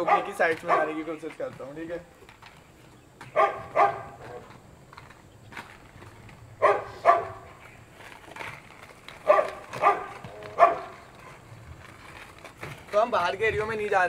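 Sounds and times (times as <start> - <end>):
dog barking: 0.0 - 1.0, 3.3 - 4.2, 6.6 - 7.5, 9.2 - 10.9.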